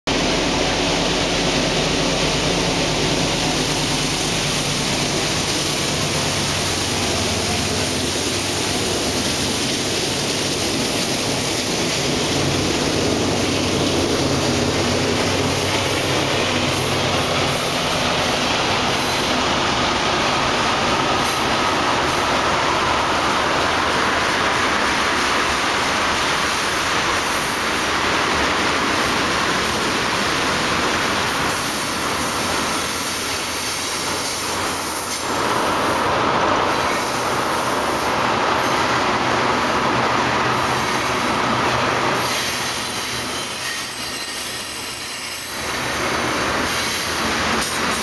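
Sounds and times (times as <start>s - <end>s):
diesel locomotive hum: 0.1s - 48.0s
train wheel and rail noise: 0.1s - 48.0s
high wheel squeal: 18.9s - 19.7s, 42.1s - 47.2s.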